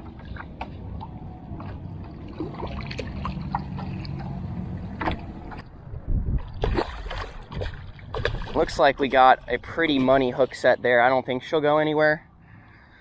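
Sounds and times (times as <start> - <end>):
water splashing against boat: 0.0 - 5.7, 6.3 - 11.2
low steady rumble: 0.0 - 13.0
fish thrashing at surface: 6.4 - 9.1.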